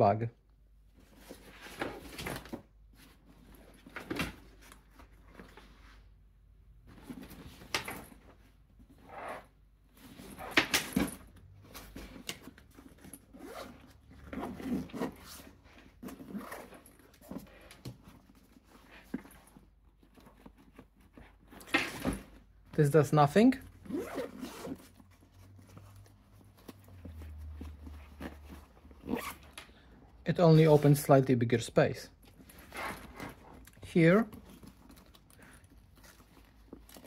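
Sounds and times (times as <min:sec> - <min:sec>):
nylon fabric rustling: 0:00.9 - 0:31.5, 0:32.1 - 0:37.0
zippers being pulled: 0:09.0 - 0:22.4, 0:23.7 - 0:29.9, 0:32.3 - 0:37.0.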